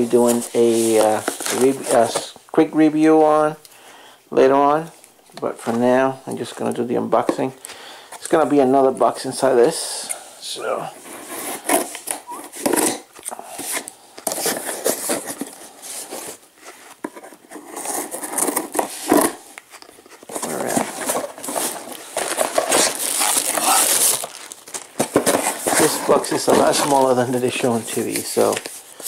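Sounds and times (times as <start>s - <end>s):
cardboard flaps rustling: 20.2s - 28.8s
plastic bag crinkling: 20.4s - 29.0s.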